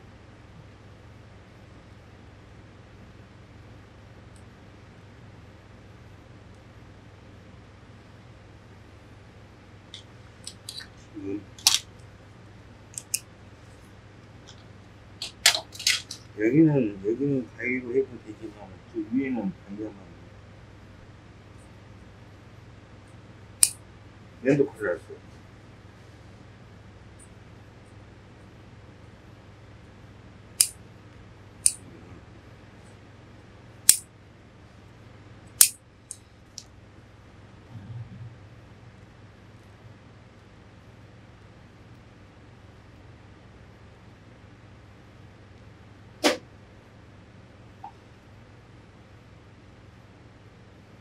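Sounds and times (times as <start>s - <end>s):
faint low hum: 0.0s - 51.0s
tools clicking and tapping: 13.0s - 13.2s.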